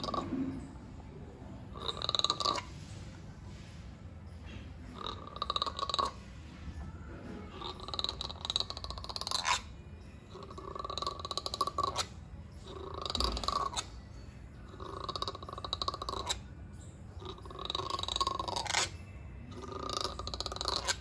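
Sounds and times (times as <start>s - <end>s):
langur rasping guttural calls: 1.7s - 2.9s, 5.0s - 6.2s, 7.5s - 14.0s, 14.7s - 16.5s, 17.2s - 21.0s.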